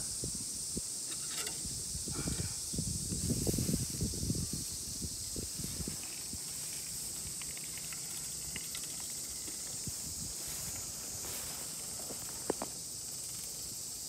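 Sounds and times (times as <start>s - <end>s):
steady high hiss: 0.0s - 14.0s
soft footsteps: 5.6s - 12.8s
seeder wheeled over soil: 5.8s - 9.8s.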